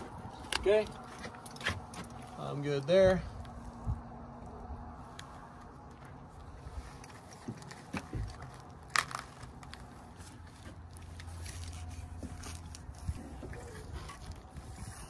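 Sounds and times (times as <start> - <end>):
tape crinkling and crackling: 3.4 - 15.0.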